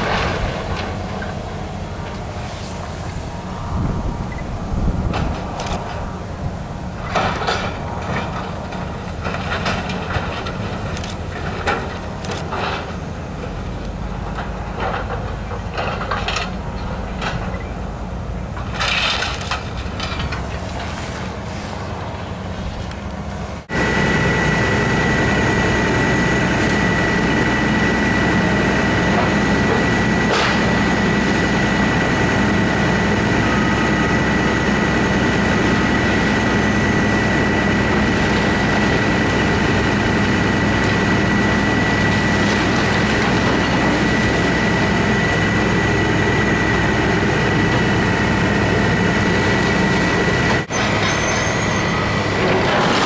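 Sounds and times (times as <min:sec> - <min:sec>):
high-pitched whine: 0:00.0 - 0:08.2
diesel engine and pump running: 0:00.0 - 0:53.0.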